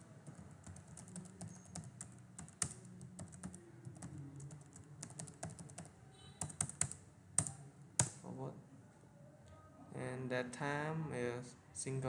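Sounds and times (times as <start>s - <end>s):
computer keyboard key clicks: 0.3s - 8.2s.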